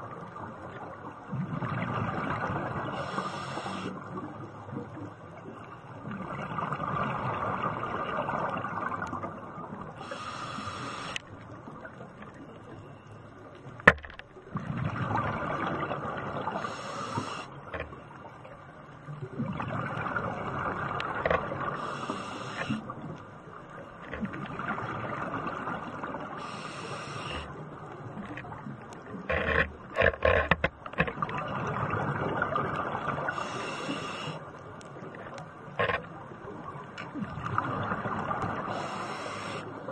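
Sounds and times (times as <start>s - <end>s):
regulator hissing inhalation: 3.0s - 3.9s, 10.0s - 11.2s, 16.6s - 17.5s, 21.8s - 22.8s, 26.4s - 27.5s, 33.3s - 34.4s, 38.7s - 39.7s
exhaled bubbles rushing: 14.5s - 16.6s.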